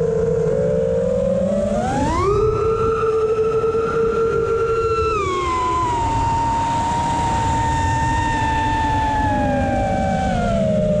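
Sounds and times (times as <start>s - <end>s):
wind rumbling on microphone: 0.0s - 11.0s
quadcopter motors whining: 4.3s - 11.0s.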